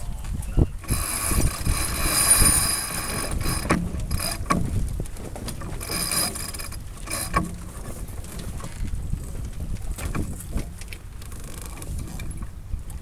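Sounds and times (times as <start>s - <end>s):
wind and water rushing: 0.0s - 13.0s
deck gear squealing: 0.6s - 4.6s, 5.8s - 7.4s.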